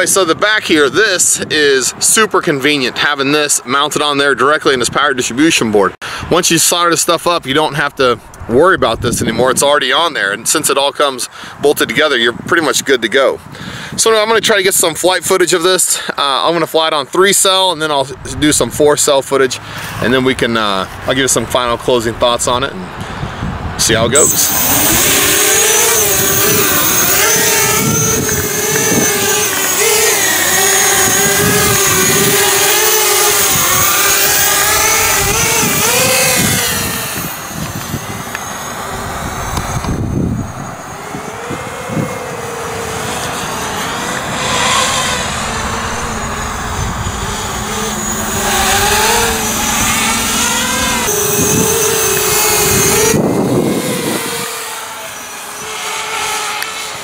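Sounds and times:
quadcopter propeller whine: 17.4s - 57.0s.

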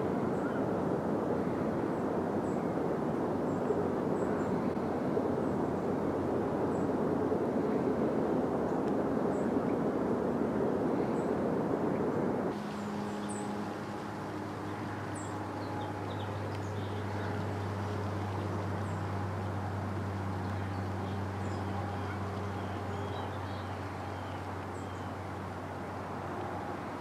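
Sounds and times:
low drone: 12.5s - 27.0s.

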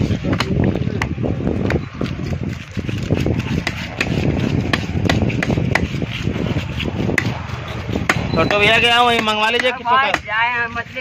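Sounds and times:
knife chopping fish on block: 0.2s - 10.3s.

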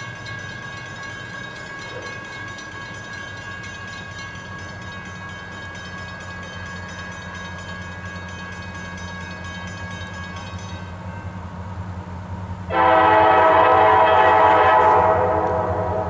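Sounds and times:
train rumbling: 0.0s - 16.0s
locomotive air horn blast: 12.7s - 16.0s.

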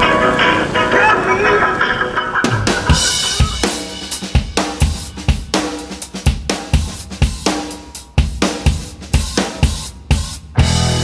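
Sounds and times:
rock drum beat: 2.4s - 11.0s.

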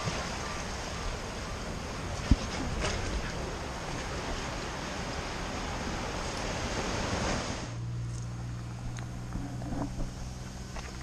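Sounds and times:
ocean surf churning on rocks: 0.0s - 7.8s
steady low hum: 7.6s - 11.0s.

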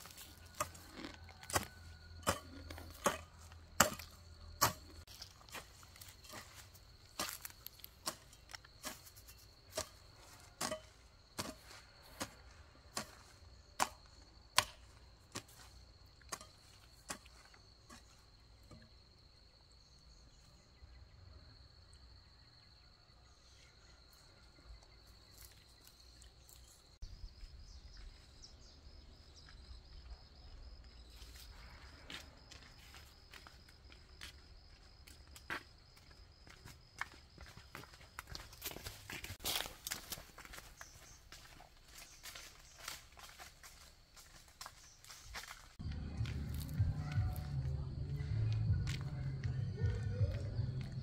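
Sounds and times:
hand hoe chopping soil: 0.0s - 18.2s.

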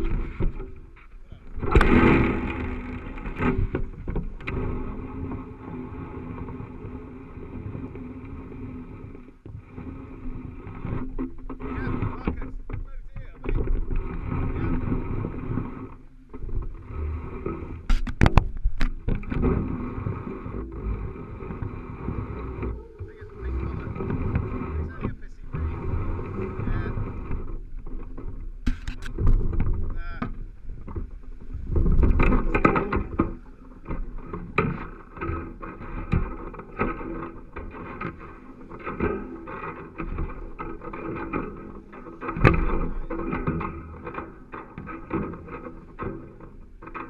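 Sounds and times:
camera handling noise and rumble: 0.0s - 5.0s, 11.0s - 47.0s
sharp knocks: 1.6s - 4.6s, 20.4s - 38.2s.

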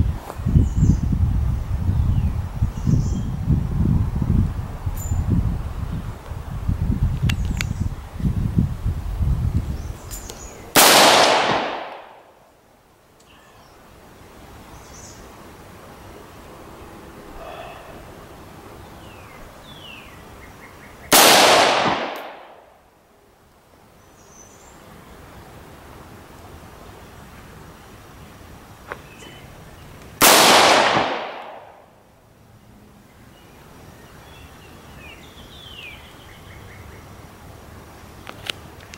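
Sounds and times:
rifle shots: 10.8s - 12.3s, 21.1s - 22.6s, 30.2s - 31.8s.

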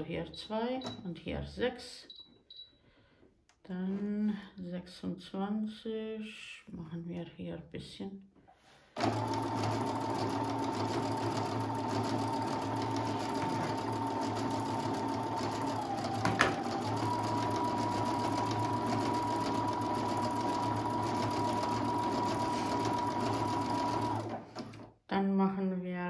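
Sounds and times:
sewing machine motor whine: 9.0s - 24.8s.

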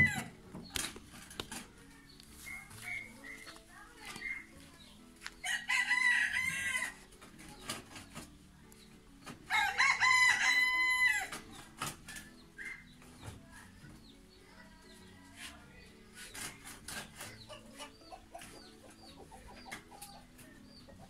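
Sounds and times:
rooster crowing: 9.5s - 11.3s.

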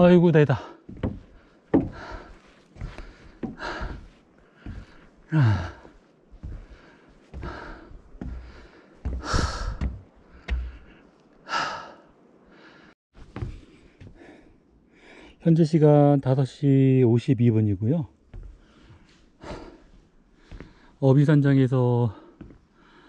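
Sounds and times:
person breathing hard: 0.7s - 15.4s, 18.6s - 21.0s
voiced sigh: 4.6s - 6.0s, 8.5s - 9.9s, 10.8s - 13.0s.

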